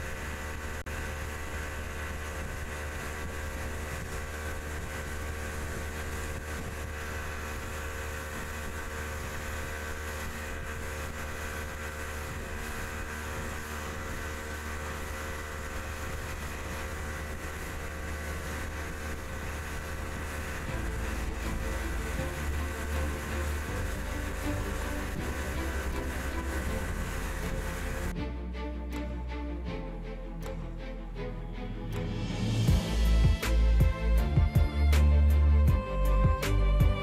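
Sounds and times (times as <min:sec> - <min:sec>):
rush of wind and water: 0:00.0 - 0:28.2
speedboat engine drone: 0:00.0 - 0:37.0.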